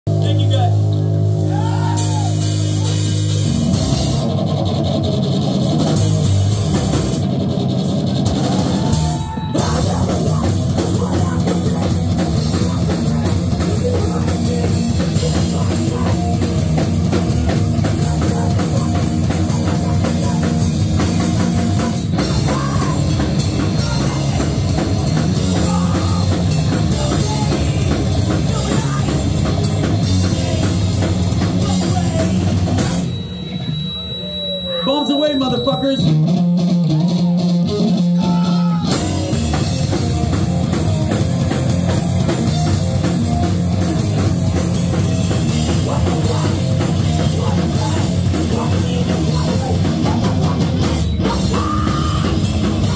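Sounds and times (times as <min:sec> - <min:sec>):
electric bass: 0:00.0 - 0:52.9
drum kit: 0:00.1 - 0:52.9
electric guitar: 0:00.1 - 0:52.9.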